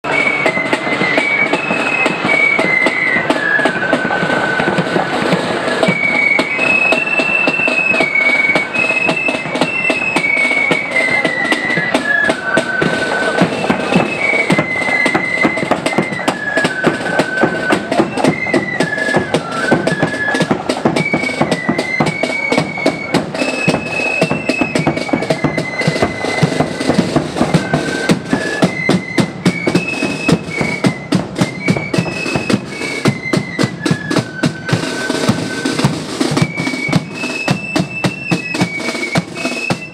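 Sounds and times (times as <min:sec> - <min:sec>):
flutes playing melody: 0:00.0 - 0:39.9
snare drums: 0:00.0 - 0:39.9.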